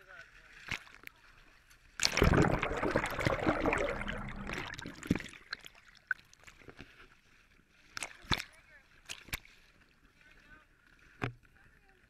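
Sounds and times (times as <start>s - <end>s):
water churning and gurgling: 0.0s - 11.3s
small knocks and drips: 7.8s - 9.9s, 10.8s - 11.6s.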